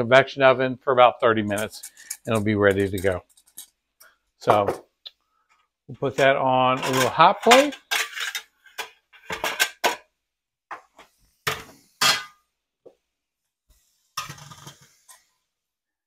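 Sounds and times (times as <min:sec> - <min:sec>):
metal cookware clinking: 0:01.5 - 0:03.7, 0:06.2 - 0:10.0, 0:11.5 - 0:12.4, 0:14.2 - 0:14.9.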